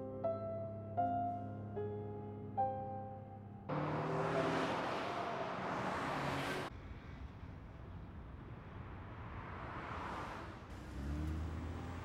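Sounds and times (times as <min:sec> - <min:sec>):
car driving at speed: 0:03.7 - 0:12.0.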